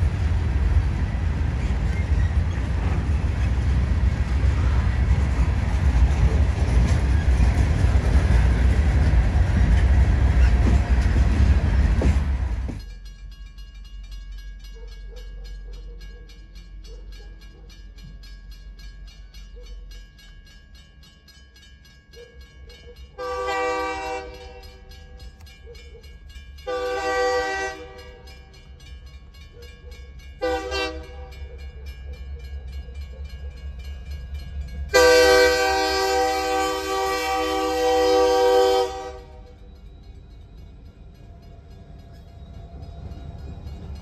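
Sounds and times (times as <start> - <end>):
train rumbling: 0.0 - 44.0
locomotive air horn blasts: 23.2 - 24.7, 26.7 - 28.2, 30.4 - 31.2, 34.9 - 39.4.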